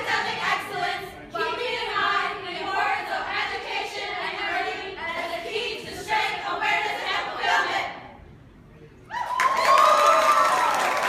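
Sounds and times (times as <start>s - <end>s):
women singing in unison: 0.0s - 8.0s.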